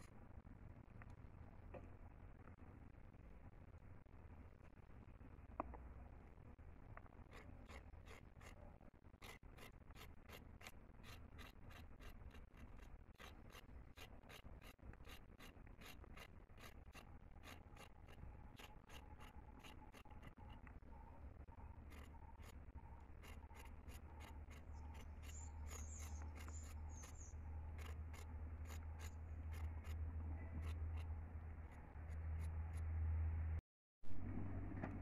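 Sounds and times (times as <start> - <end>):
knife scraping carrot: 7.1 - 32.9.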